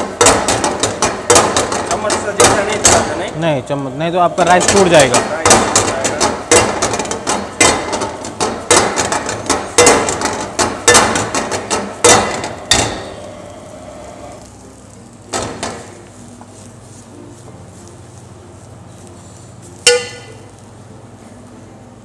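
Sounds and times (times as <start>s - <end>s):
wok knocking on burner grate: 0.0s - 3.4s, 4.4s - 13.2s, 15.3s - 16.0s, 19.8s - 20.6s
rice rustling in wok: 13.2s - 21.4s.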